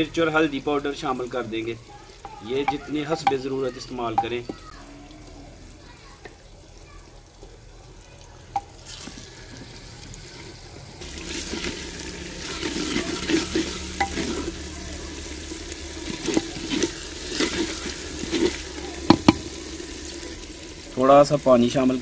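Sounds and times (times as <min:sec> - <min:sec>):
masala sizzling in oil: 0:00.0 - 0:22.0
ladle knocking against pot: 0:02.2 - 0:03.5, 0:19.1 - 0:19.5
ladle scraping clay pot: 0:08.6 - 0:20.6.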